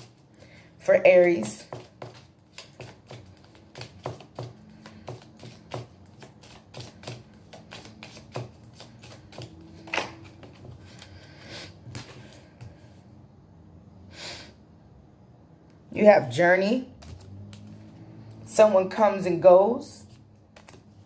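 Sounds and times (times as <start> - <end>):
cards being shuffled: 1.6 - 12.8, 20.1 - 21.0.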